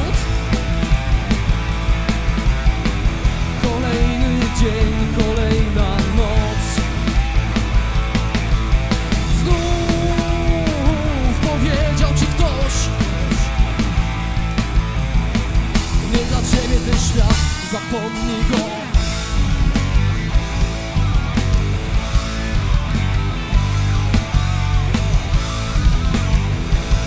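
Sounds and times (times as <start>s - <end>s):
man singing: 0.0s - 0.4s, 3.6s - 7.0s, 9.2s - 13.6s, 16.0s - 19.0s
bass guitar: 0.0s - 27.0s
drum kit steady beat: 0.0s - 27.0s
electric guitars: 0.0s - 27.0s.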